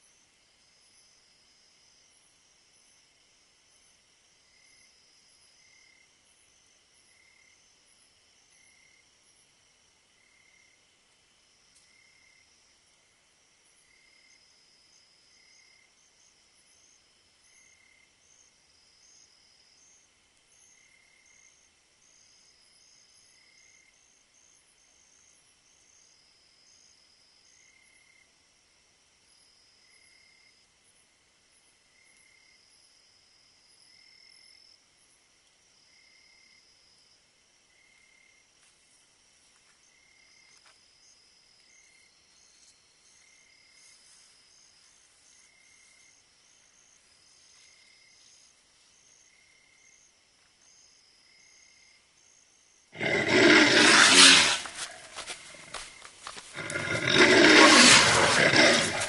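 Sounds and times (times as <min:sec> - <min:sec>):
crickets and insects trilling: 0:39.9 - 0:59.0.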